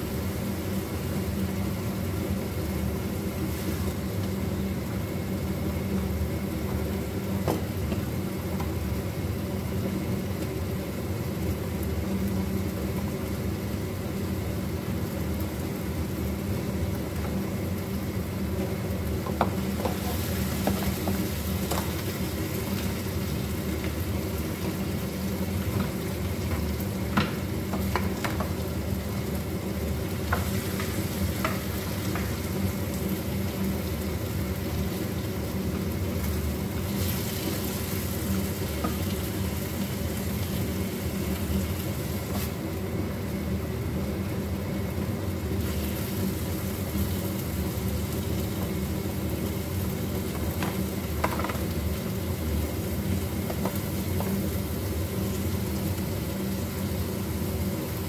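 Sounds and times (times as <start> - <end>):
food sizzling in a pan: 0.0 - 58.0.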